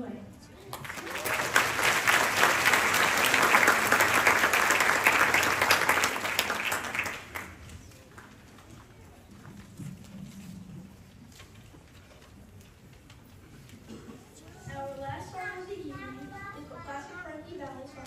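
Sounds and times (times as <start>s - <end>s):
audience applauding: 0.7s - 8.4s.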